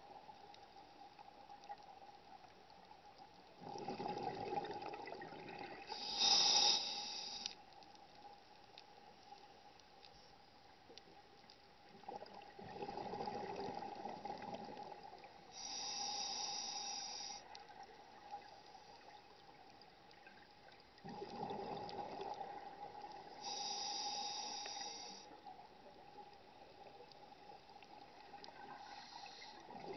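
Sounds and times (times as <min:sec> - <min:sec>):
faint steady hum: 0:00.0 - 0:29.9
exhaled bubbles gurgling: 0:03.6 - 0:06.4, 0:12.0 - 0:15.8, 0:21.0 - 0:23.7, 0:28.0 - 0:29.9
regulator inhalation hiss: 0:05.9 - 0:07.6, 0:15.6 - 0:17.5, 0:23.4 - 0:25.3, 0:28.7 - 0:29.6.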